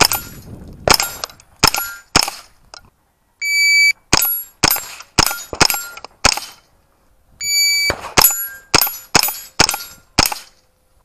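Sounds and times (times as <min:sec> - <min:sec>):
rifle shots: 0:00.0 - 0:02.5, 0:04.1 - 0:06.7, 0:07.6 - 0:10.6.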